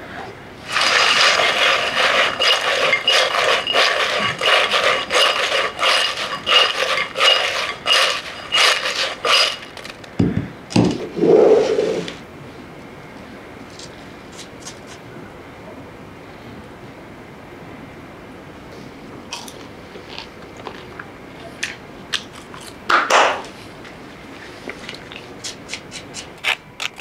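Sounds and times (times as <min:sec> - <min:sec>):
fries rattling in a glass bowl: 0:00.7 - 0:10.0.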